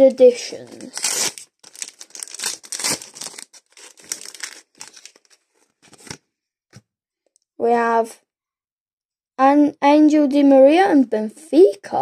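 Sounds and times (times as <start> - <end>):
paper wrapper crinkling and tearing: 0.0 - 6.2.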